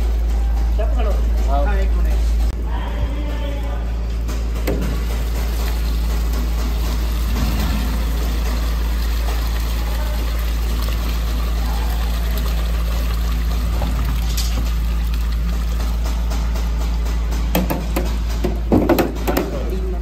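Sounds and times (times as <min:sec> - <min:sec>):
steady low hum: 0:00.0 - 0:18.6
water running and pouring: 0:04.7 - 0:17.4.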